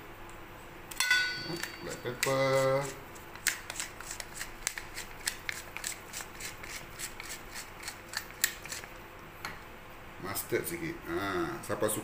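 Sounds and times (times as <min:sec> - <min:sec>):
pepper mill grinding: 0:01.4 - 0:09.0.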